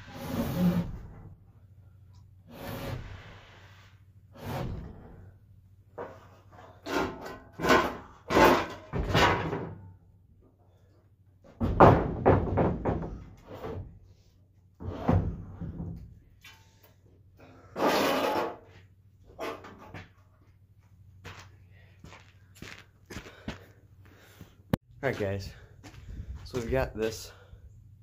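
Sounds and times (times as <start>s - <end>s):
wooden boards knocking on beams: 11.5s - 13.4s.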